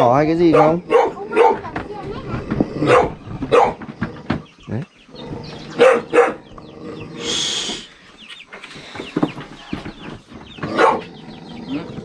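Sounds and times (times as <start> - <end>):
chicks peeping: 0.0 - 12.0
puppy barking: 0.4 - 1.8, 2.8 - 3.8, 5.8 - 6.5, 10.7 - 11.1.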